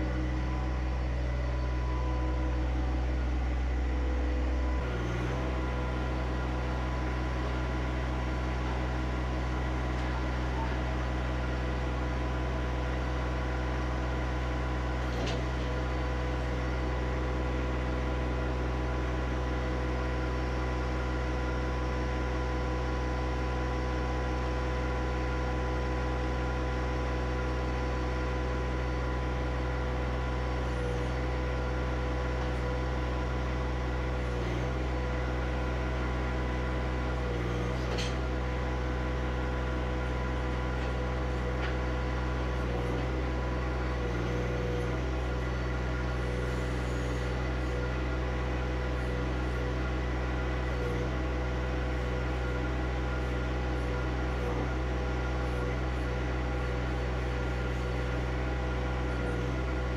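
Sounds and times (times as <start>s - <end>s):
tractor diesel engine idling: 0.0s - 37.3s.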